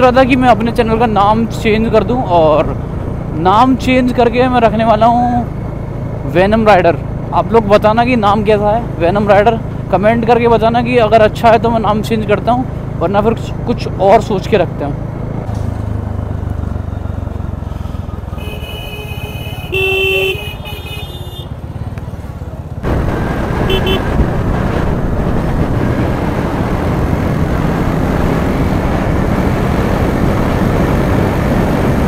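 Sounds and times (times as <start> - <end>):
motorcycle engine: 13.9 - 32.0
vehicle horns honking: 18.3 - 21.7, 23.6 - 24.2
wind rush: 22.8 - 32.0.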